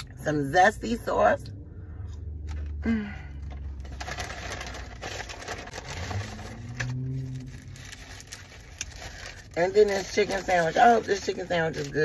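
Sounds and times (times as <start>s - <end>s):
paper wrapper crinkling: 3.6s - 12.0s.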